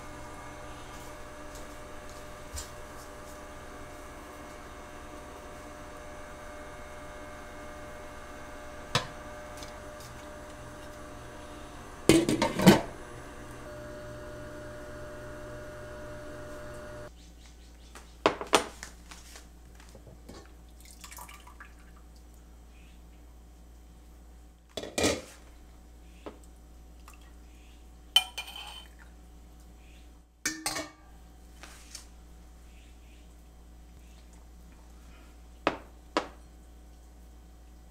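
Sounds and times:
steady hum: 0:00.0 - 0:17.1.

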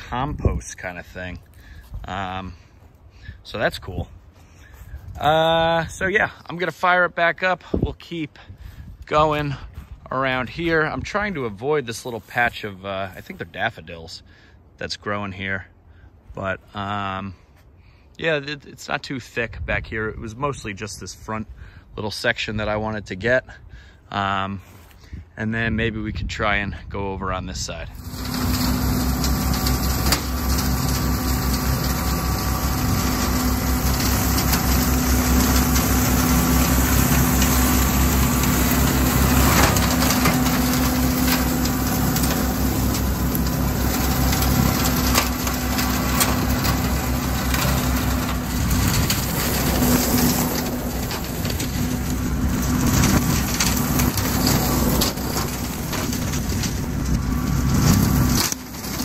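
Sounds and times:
rotary cutter mulching brush: 0:00.0 - 0:13.9, 0:27.3 - 0:59.0
tractor diesel engine running: 0:27.9 - 0:59.0
debris knocking on cutter: 0:28.0 - 0:59.0.

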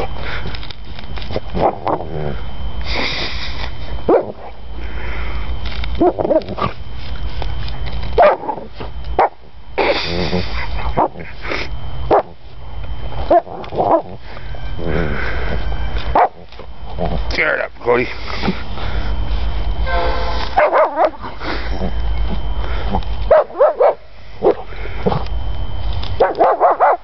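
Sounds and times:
dog barking and whimpering: 0:06.0 - 0:06.7, 0:08.2 - 0:09.4, 0:13.2 - 0:14.2, 0:16.1 - 0:16.4, 0:20.6 - 0:21.9, 0:23.3 - 0:24.6, 0:26.2 - 0:27.0.

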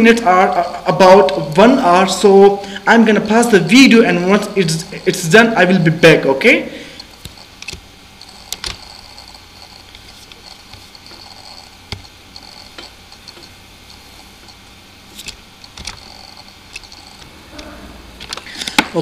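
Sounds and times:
faint room and microphone hiss: 0:00.0 - 0:07.0
computer mouse clicks: 0:07.0 - 0:13.6.

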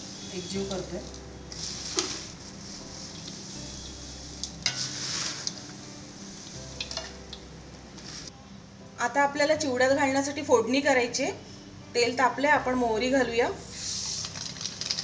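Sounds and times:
dry rice flakes rustling: 0:00.0 - 0:07.0, 0:13.8 - 0:15.0
loud swishes of mixing: 0:01.5 - 0:03.8, 0:04.7 - 0:05.6.

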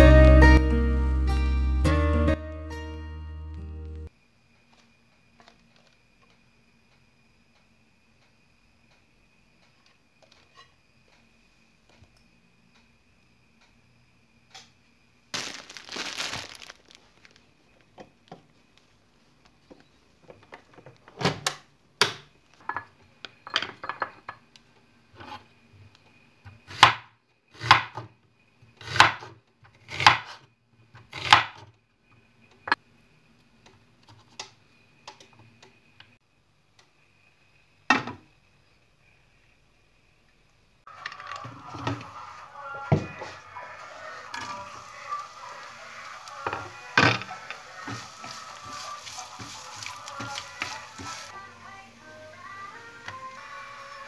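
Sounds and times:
faint steady hum: 0:31.9 - 0:54.0
rustling scrape: 0:47.8 - 0:51.3.

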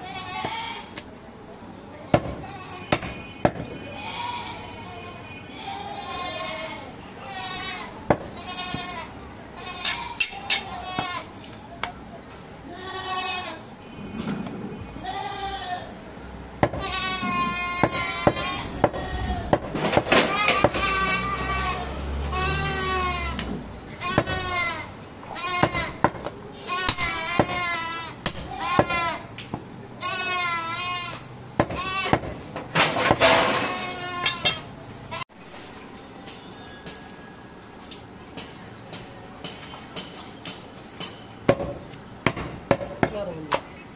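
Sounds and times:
goat bleating: 0:00.0 - 0:01.0, 0:03.8 - 0:04.9, 0:05.5 - 0:11.4, 0:12.6 - 0:13.7, 0:15.0 - 0:16.0, 0:16.8 - 0:19.5, 0:20.3 - 0:26.0, 0:26.6 - 0:29.3, 0:30.0 - 0:31.2, 0:31.8 - 0:32.2, 0:33.5 - 0:35.2.

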